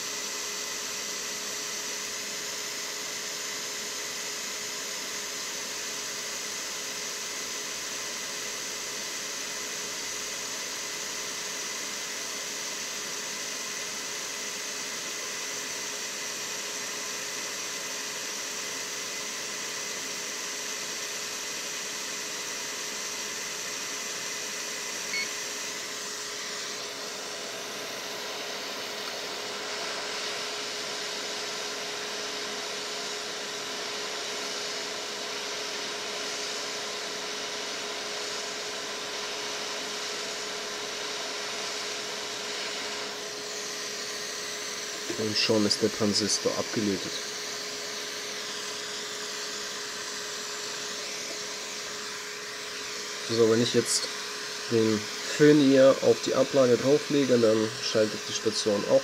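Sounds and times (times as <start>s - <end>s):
hot air blower rushing: 0.0s - 59.0s
short beep: 25.1s - 25.4s.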